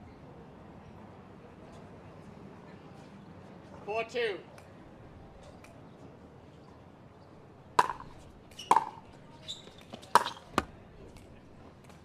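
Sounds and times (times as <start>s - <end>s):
ball bouncing on hard court: 7.8s - 9.0s, 9.6s - 10.8s
paddles striking ball: 7.8s - 9.0s, 9.9s - 10.8s.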